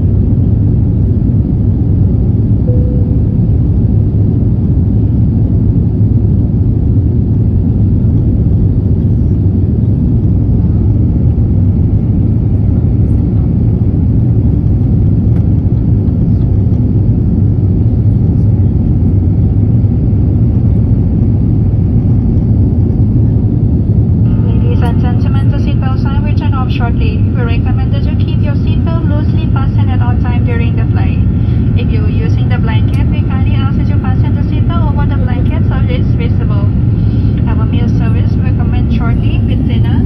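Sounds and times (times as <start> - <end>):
aircraft engines droning: 0.0 - 40.0
airflow noise: 23.2 - 40.0.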